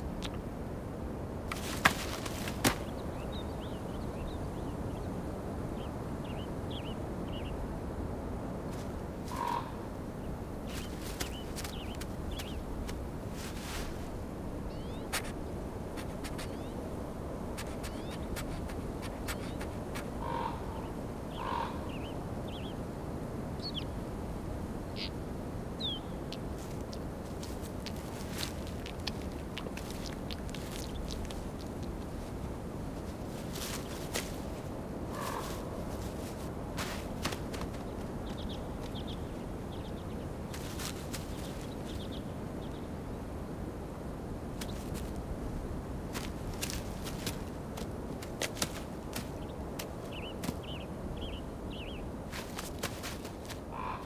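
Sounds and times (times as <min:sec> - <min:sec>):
steady low rumble: 0:00.0 - 0:52.3
outdoor background: 0:00.0 - 0:54.0
rustle of forest litter: 0:01.5 - 0:03.7, 0:08.6 - 0:09.7, 0:10.6 - 0:16.8, 0:17.5 - 0:20.6, 0:26.3 - 0:42.3, 0:44.5 - 0:54.0
hoarse bird calls: 0:09.3 - 0:09.9, 0:17.7 - 0:22.8, 0:35.1 - 0:36.2, 0:53.6 - 0:54.0.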